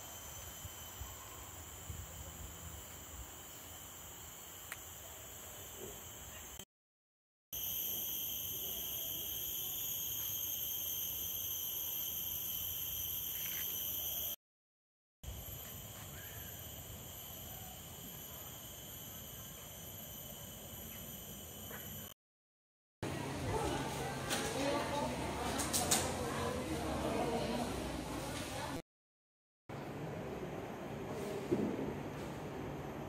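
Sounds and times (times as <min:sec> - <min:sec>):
insects buzzing: 0:00.0 - 0:06.6, 0:07.6 - 0:14.4, 0:15.3 - 0:22.2.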